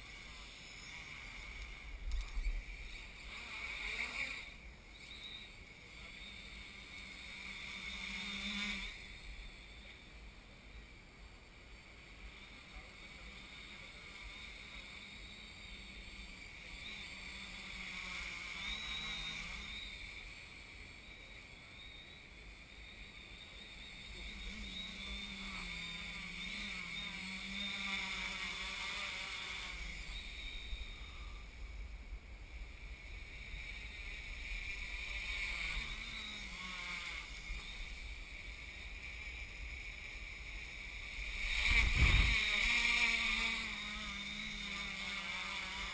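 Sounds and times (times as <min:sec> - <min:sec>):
quadcopter motors buzzing: 0:00.0 - 0:45.9.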